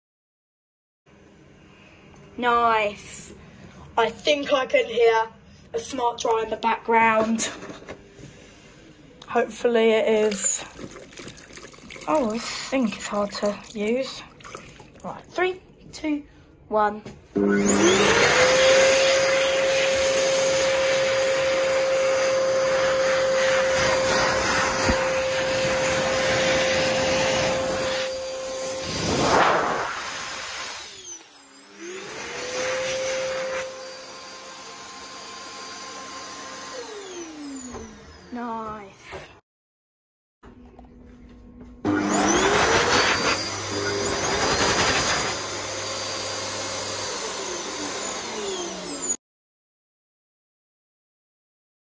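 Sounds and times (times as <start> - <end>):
hand dryer running: 17.4 - 38.6, 41.9 - 49.2.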